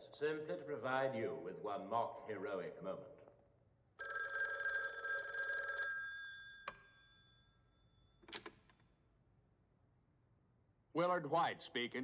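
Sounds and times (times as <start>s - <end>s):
telephone bell ringing: 4.0s - 8.1s.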